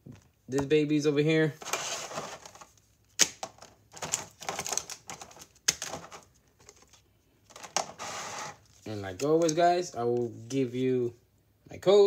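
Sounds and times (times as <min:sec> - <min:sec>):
packaging rustling: 0:01.6 - 0:09.6
plastic packaging clicks: 0:02.4 - 0:07.9.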